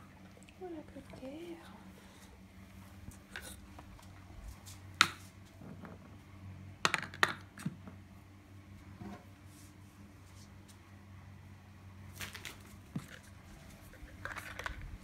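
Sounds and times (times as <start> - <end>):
low steady hum: 0.0 - 15.0
dog treats clicking and clattering: 13.9 - 15.0.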